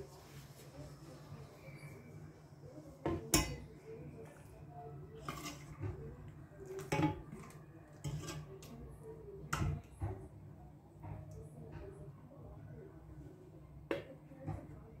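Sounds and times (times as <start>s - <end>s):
metal ladle clinking on pot: 3.1s - 3.7s, 6.7s - 8.7s.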